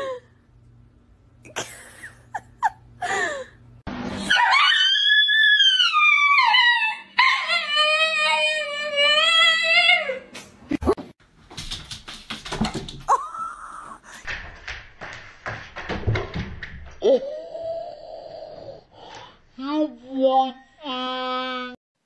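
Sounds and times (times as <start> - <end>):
dog howling: 4.3 - 10.2.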